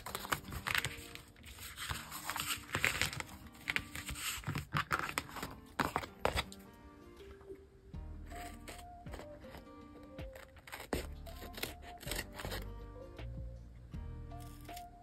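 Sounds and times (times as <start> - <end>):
paper rustling: 0.0 - 6.5, 8.3 - 12.6
soft background music: 0.0 - 15.0.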